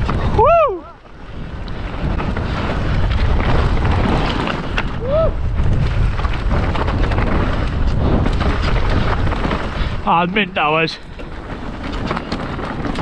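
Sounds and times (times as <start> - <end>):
bike clicks and rattles: 0.0 - 13.0
bike tyres rolling on dirt: 0.0 - 13.0
wind noise on microphone: 0.0 - 13.0
rising and falling whoop: 0.3 - 1.0, 5.0 - 5.4.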